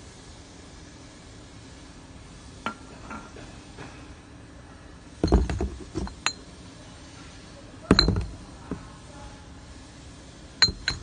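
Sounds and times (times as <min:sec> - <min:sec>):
bottles knocking in cardboard box: 0:05.2 - 0:06.3, 0:07.9 - 0:08.4
glass bottles clinking: 0:05.2 - 0:06.4, 0:07.9 - 0:08.4, 0:10.6 - 0:11.0.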